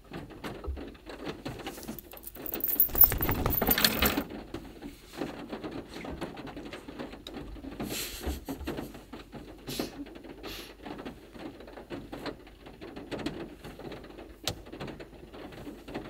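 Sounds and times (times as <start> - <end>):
cloth rustling: 1.8 - 4.2.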